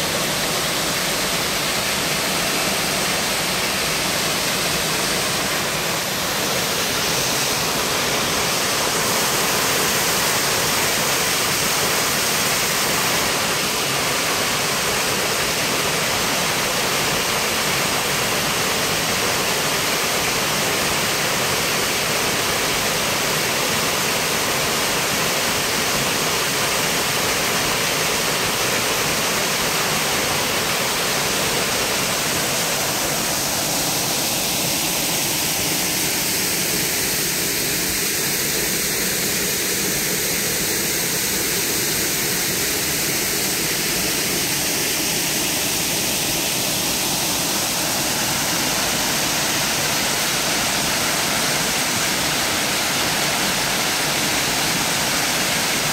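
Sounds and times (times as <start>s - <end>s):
waterfall rushing into pool: 0.0s - 55.9s.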